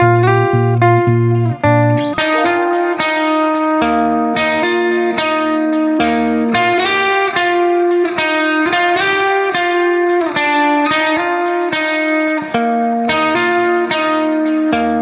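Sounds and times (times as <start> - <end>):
quick melody over held notes: 0.0 - 3.2.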